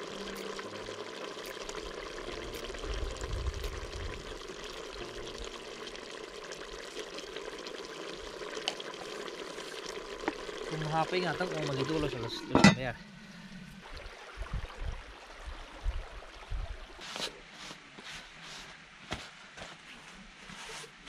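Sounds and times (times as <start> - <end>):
water pouring into a pot: 0.0 - 13.0.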